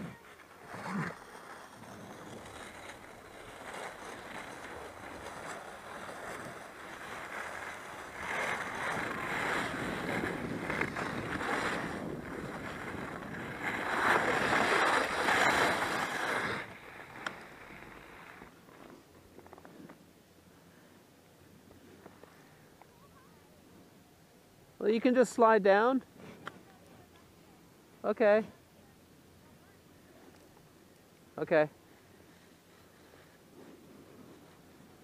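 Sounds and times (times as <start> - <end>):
skis scraping over snow: 0.0 - 23.3, 24.8 - 28.4, 29.3 - 35.0
wind rushing over microphone: 8.1 - 16.8.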